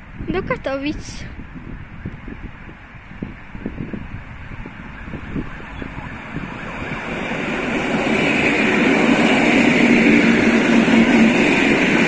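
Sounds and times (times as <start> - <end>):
train wheels rumbling on rails: 5.1 - 12.0.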